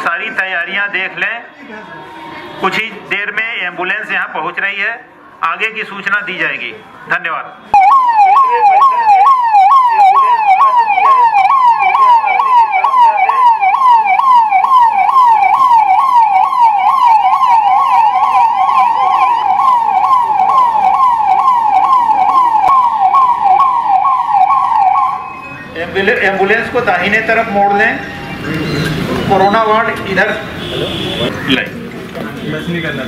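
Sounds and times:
ambulance siren wailing: 0:07.7 - 0:31.3.

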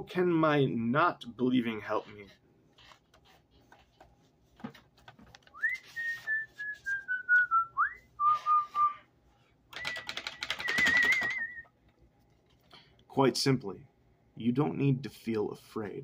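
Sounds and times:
person whistling a tune: 0:05.6 - 0:09.1, 0:09.7 - 0:11.7.

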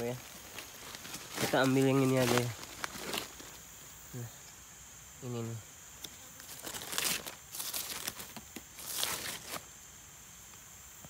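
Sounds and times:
dry leaves rustling and crackling: 0:00.0 - 0:03.6, 0:06.4 - 0:09.7.

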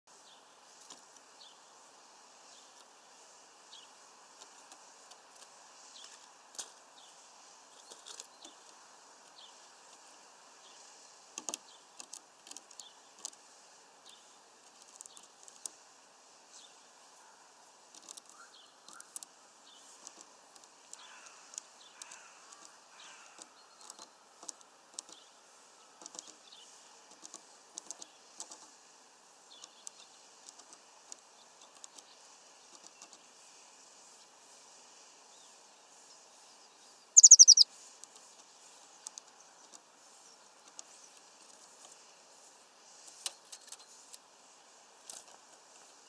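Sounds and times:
faint chirps: 0:35.2 - 0:41.2.

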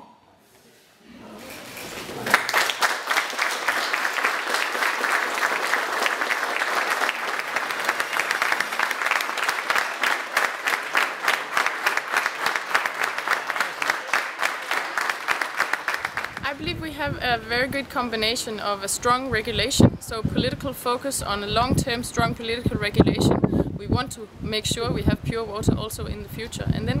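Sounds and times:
audience applause: 0:01.8 - 0:16.4.

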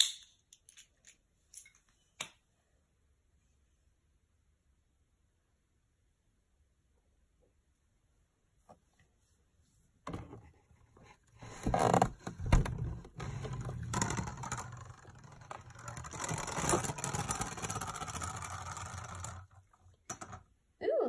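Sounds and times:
spinning top scraping on plastic: 0:11.4 - 0:20.4
spinning top knocks: 0:13.5 - 0:20.4.

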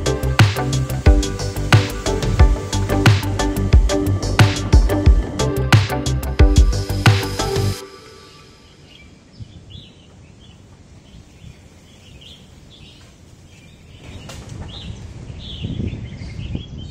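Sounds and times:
low rumble: 0:00.0 - 0:07.8
birds chirping: 0:00.0 - 0:16.9.

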